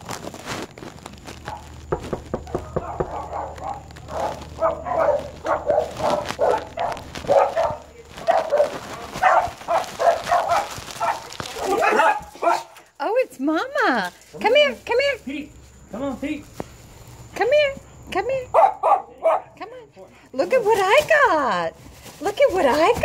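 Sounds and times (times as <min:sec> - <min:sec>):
dogs barking and yipping: 0:01.3 - 0:12.9, 0:18.5 - 0:19.6.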